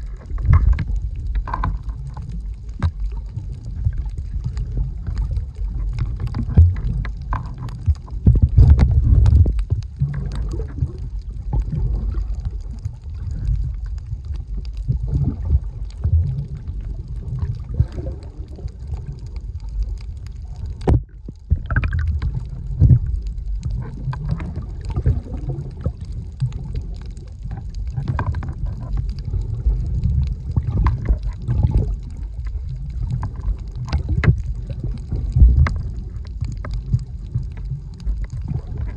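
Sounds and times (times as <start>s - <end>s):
muffled underwater rumble: 0.0s - 38.9s
underwater thumps and gurgles: 0.0s - 38.9s.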